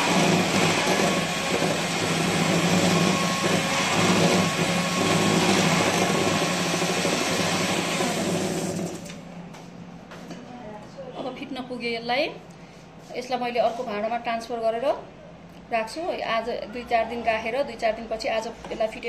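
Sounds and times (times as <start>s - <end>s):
electric hand mixer running: 0.0s - 9.1s.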